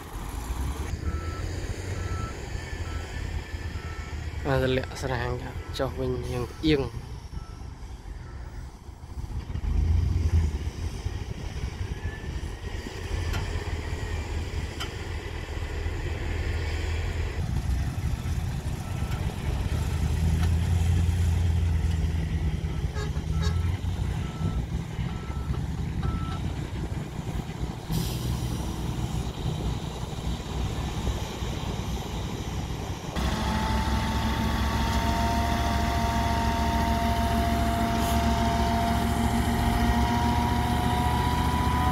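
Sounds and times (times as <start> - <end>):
diesel truck engine labouring: 0.0 - 41.9
reversing beeper: 0.8 - 8.8.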